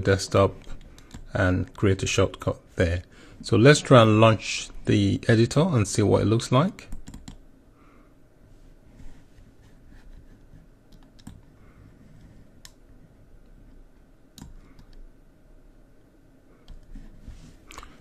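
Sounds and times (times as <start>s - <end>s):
low room noise: 0.0s - 18.0s
computer mouse clicks: 0.6s - 1.3s, 6.9s - 7.4s, 10.9s - 11.6s, 14.4s - 15.0s.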